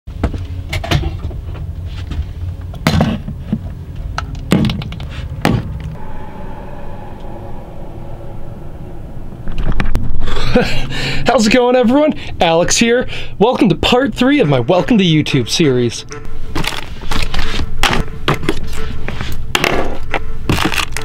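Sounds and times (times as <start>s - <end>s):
vehicle rumbling: 0.1s - 13.8s
sharp knocks and clunks: 4.5s - 5.9s.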